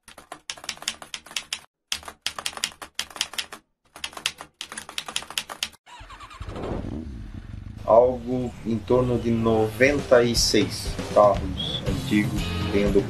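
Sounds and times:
typewriter keys clacking: 0.0s - 5.8s.

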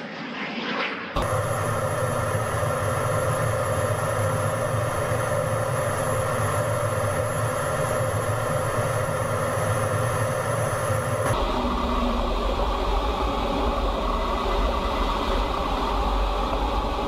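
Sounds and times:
jet engine and airflow drone: 0.0s - 17.0s
thin high whine: 0.8s - 17.0s
steady hum: 1.2s - 17.0s.

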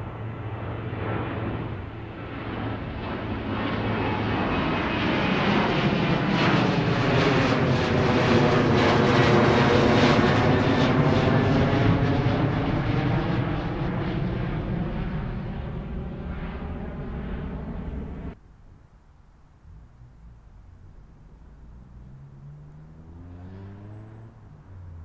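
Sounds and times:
jet airliner flying overhead: 0.0s - 18.4s.

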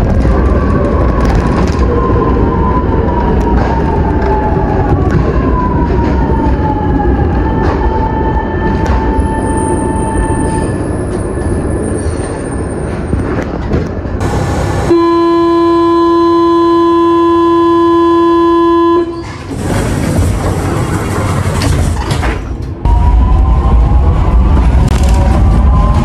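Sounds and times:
train rumble: 0.0s - 26.0s
loud steady warning tone: 7.3s - 12.9s, 14.2s - 19.5s.

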